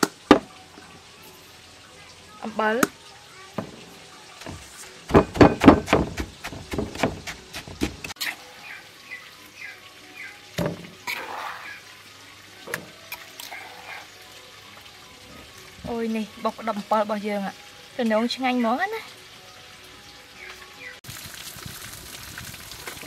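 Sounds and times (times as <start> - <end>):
pestle scraping: 4.4 - 8.3
wooden pestle pounding in mortar: 5.1 - 8.1.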